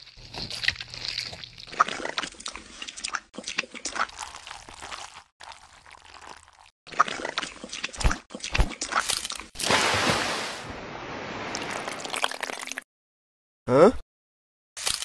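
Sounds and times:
muddy water flowing and splashing: 5.5 - 12.8.

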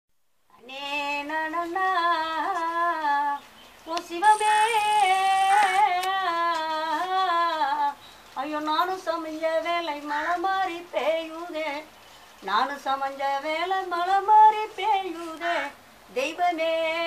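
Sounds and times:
woman singing unaccompanied: 0.5 - 17.0.

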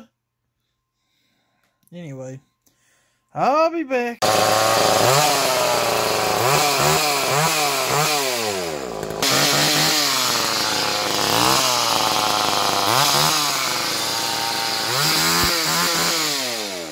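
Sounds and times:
chainsaw revving: 4.2 - 16.9.

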